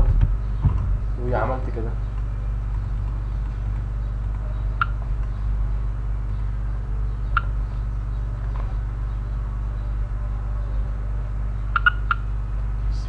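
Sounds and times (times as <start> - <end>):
steady low hum: 0.0 - 13.0
mouse clicks: 4.8 - 5.4, 7.3 - 7.5, 11.8 - 12.2.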